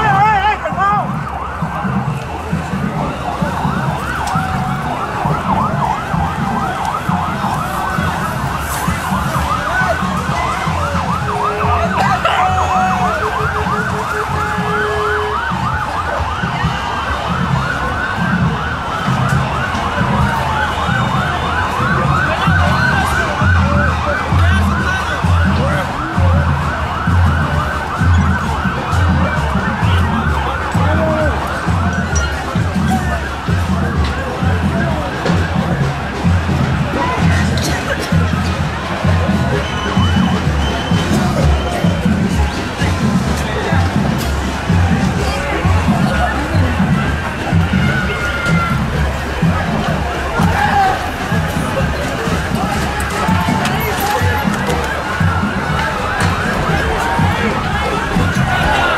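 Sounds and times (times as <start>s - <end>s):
police siren yelping and wailing: 0.0s - 58.9s.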